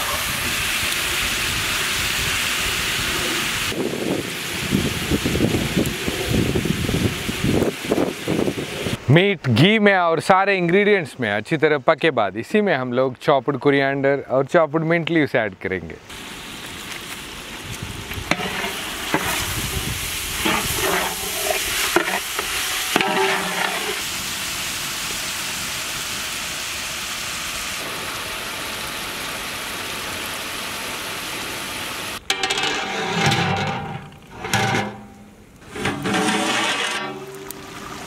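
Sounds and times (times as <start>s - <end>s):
meat sizzling in hot oil: 16.1s - 32.2s
metal ladle scraping pot: 18.3s - 24.0s, 32.2s - 37.8s.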